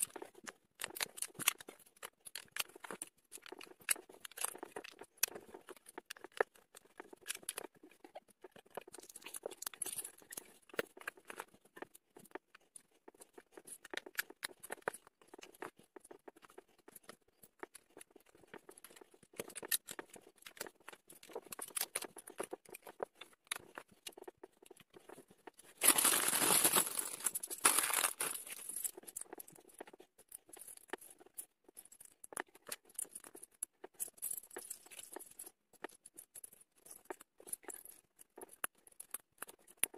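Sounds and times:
plastic bricks clicking and rattling: 0:00.0 - 0:11.9, 0:16.4 - 0:39.9
plastic bag crinkling: 0:25.8 - 0:28.9.

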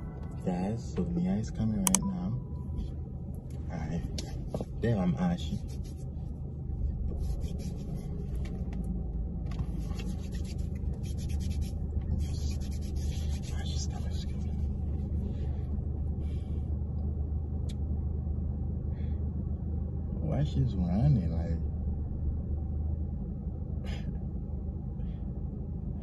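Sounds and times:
low hum inside a car: 0:00.0 - 0:26.0
hand rubbing dry skin: 0:05.4 - 0:06.2, 0:07.1 - 0:08.4, 0:09.7 - 0:14.8.

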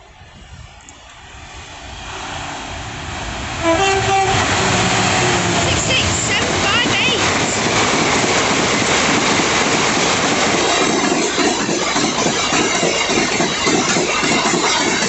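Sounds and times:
steel wheels rolling on rails: 0:00.4 - 0:15.0.

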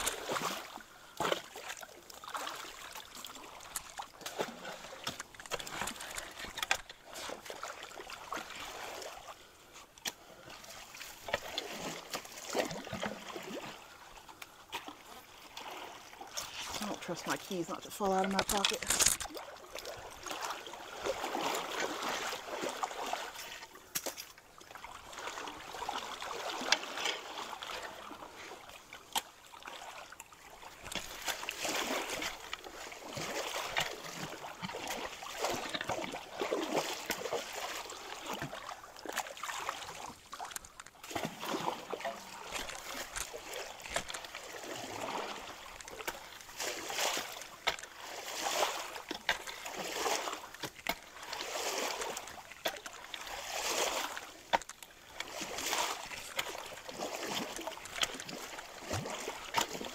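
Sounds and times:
stream rushing: 0:00.0 - 0:00.7
water splashing from wading: 0:00.0 - 0:59.9.

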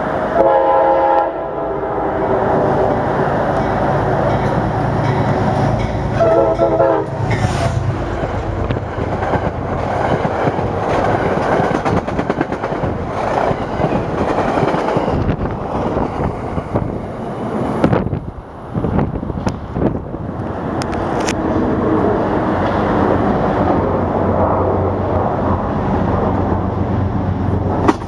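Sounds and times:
locomotive low hum: 0:01.9 - 0:28.0
train wheels clattering: 0:03.5 - 0:16.8.

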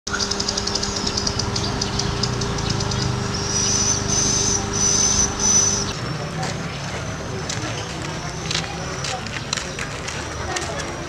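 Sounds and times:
steady low hum: 0:00.1 - 0:07.4.

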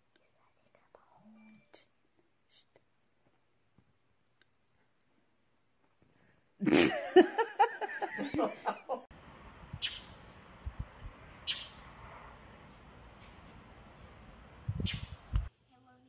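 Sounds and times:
person laughing: 0:06.6 - 0:09.1.

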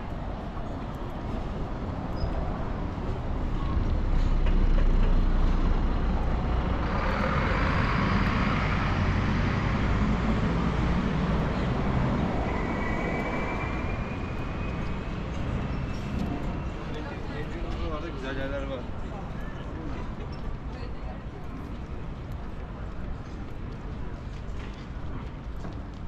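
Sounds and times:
vehicles passing close by: 0:00.0 - 0:19.9.

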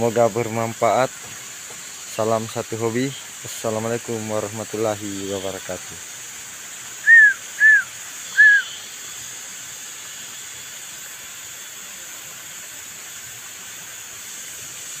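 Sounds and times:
steady high hiss: 0:00.0 - 0:15.0
whistled notes: 0:07.0 - 0:08.8.

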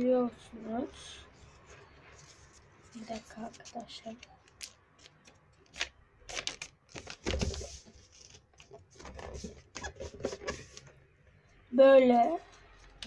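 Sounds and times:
paper rustling and crinkling: 0:01.6 - 0:10.9.

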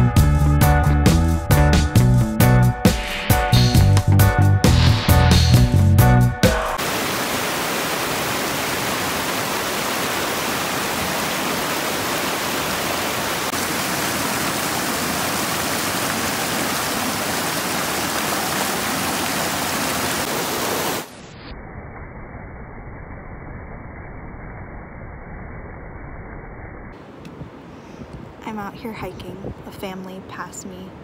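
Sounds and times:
water rushing over rocks: 0:06.5 - 0:21.2.

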